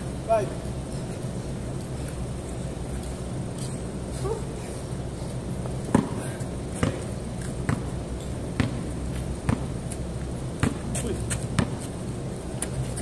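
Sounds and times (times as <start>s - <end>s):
basketball bouncing on concrete: 5.8s - 10.0s, 10.6s - 11.9s.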